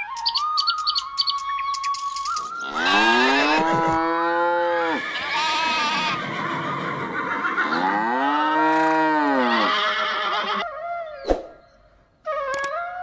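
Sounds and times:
cow mooing: 2.8 - 5.0, 7.7 - 10.0.

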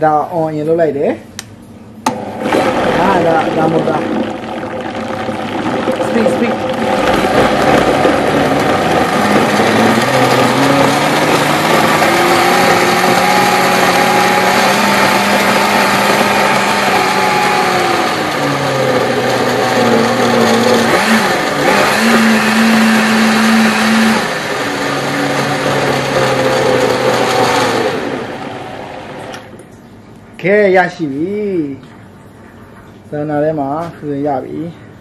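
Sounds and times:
blender motor running: 2.1 - 29.5.

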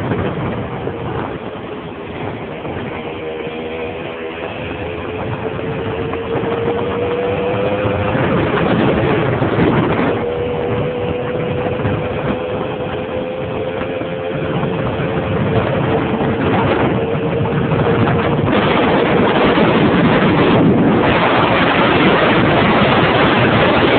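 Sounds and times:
dense rushing noise: 0.0 - 23.9
moped engine running: 0.0 - 23.9.

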